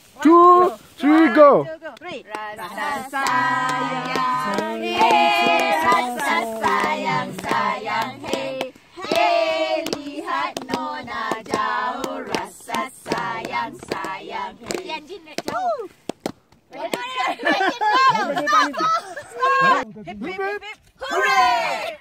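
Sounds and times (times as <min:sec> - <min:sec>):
women singing together: 0:01.8 - 0:15.9
hand claps: 0:01.9 - 0:17.1.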